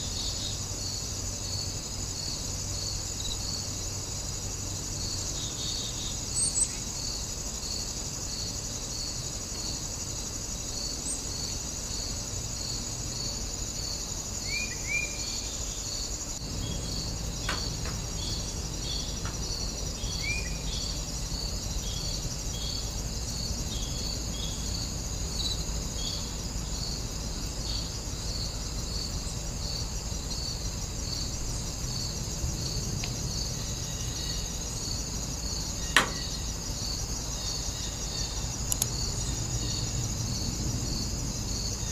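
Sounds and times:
insect chorus buzzing: 0.0s - 41.9s
bird chirps: 20.0s - 21.0s
sharp click: 36.0s - 36.3s, 38.7s - 38.9s.

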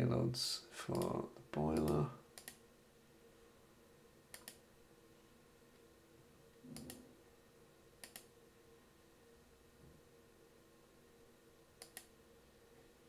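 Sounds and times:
faint room hum: 0.0s - 13.0s
computer mouse clicks: 1.8s - 2.6s, 4.3s - 4.6s, 6.7s - 7.0s, 8.0s - 8.3s, 11.8s - 12.1s.

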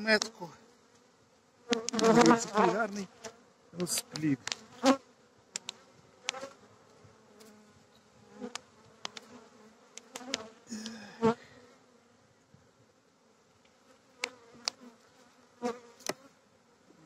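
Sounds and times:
bees humming: 0.0s - 12.3s.

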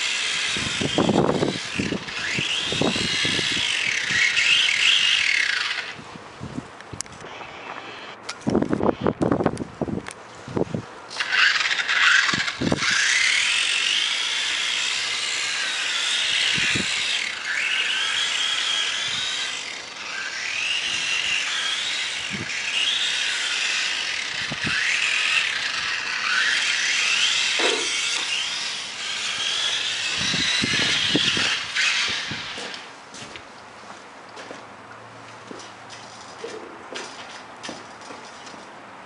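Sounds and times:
electric motor whining: 0.0s - 6.1s, 7.1s - 9.6s, 10.6s - 33.0s.

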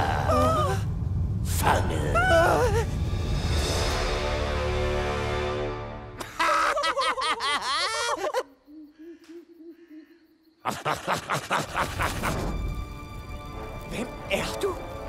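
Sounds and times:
music: 0.8s - 6.2s, 11.8s - 15.0s.

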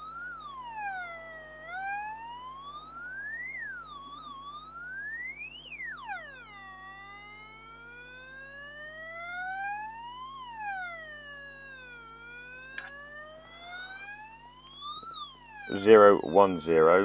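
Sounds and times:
electronic siren wail: 0.0s - 17.0s
small click: 12.7s - 13.0s.

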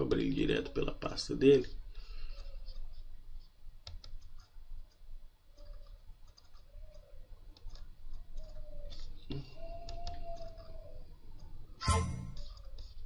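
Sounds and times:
computer mouse clicking: 3.8s - 11.6s, 12.4s - 13.0s.

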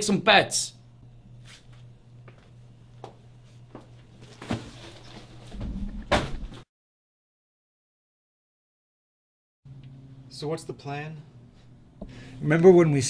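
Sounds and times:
steady low hum: 0.0s - 6.6s, 9.7s - 13.0s
loud thump: 5.6s - 6.6s.

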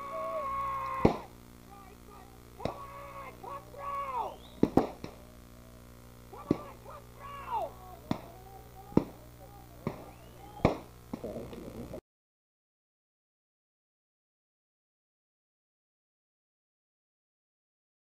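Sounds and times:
sharp cracks: 0.0s - 1.5s, 2.5s - 3.6s, 4.2s - 5.2s, 6.2s - 7.0s, 7.6s - 11.3s
indistinct calling voices: 0.0s - 12.0s
low electrical hum: 0.0s - 12.0s.

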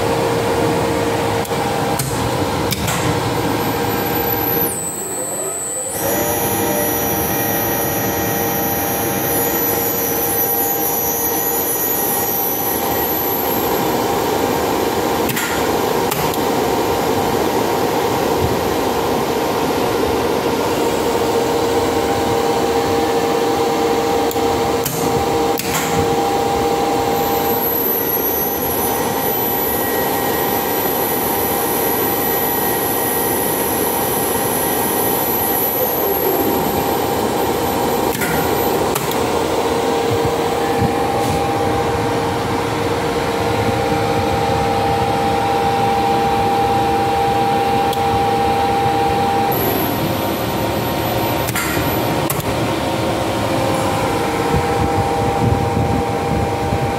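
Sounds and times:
elevator machinery humming: 0.0s - 56.9s
high thin whine: 0.0s - 56.9s.

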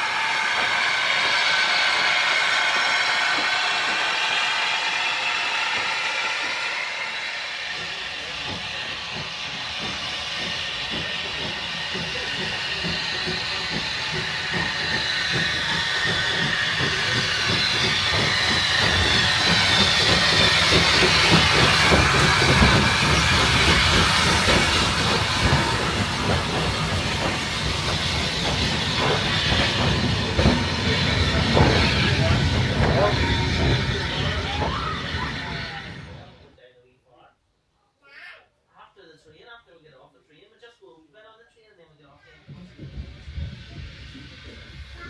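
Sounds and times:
steam locomotive hissing: 0.0s - 36.6s, 42.2s - 45.0s
locomotive clattering knocks: 7.6s - 36.3s, 42.3s - 45.0s.

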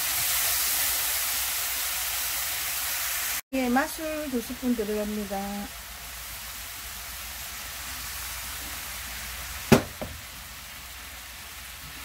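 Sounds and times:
sauce sizzling in a wok: 0.0s - 12.0s
sharp knock: 9.7s - 10.2s.

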